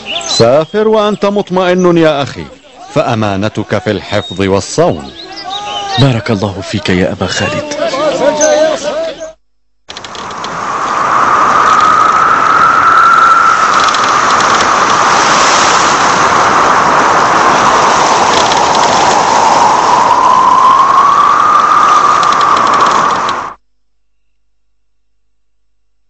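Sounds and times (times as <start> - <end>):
howling wind: 9.9 - 23.6.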